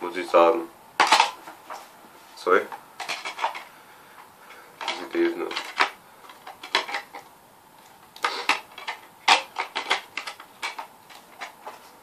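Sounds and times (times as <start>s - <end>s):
plastic case clicks and rustles: 1.0s - 1.5s, 3.0s - 3.7s, 4.8s - 7.3s, 8.2s - 11.9s.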